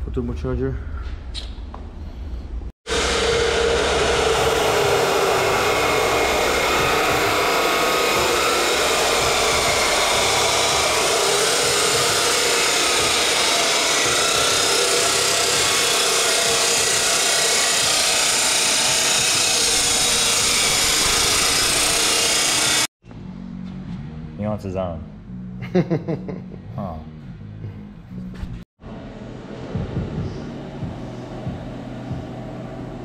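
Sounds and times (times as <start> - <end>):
chop saw grinding steel: 2.9 - 22.9.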